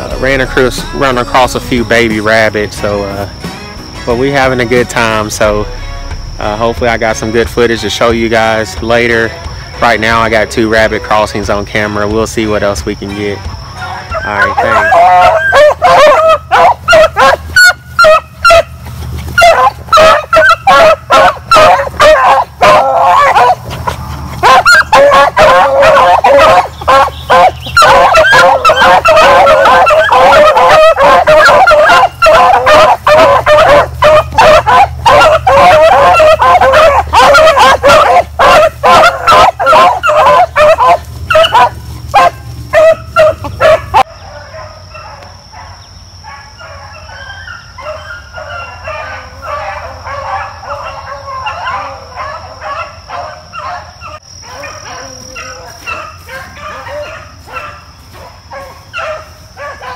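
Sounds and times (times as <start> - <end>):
hounds baying and yelping: 13.6 - 59.9.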